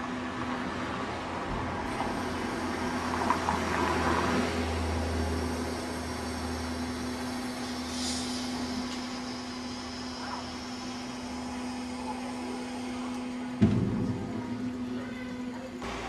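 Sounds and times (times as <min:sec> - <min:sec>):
bridge machinery humming: 0:00.0 - 0:16.0.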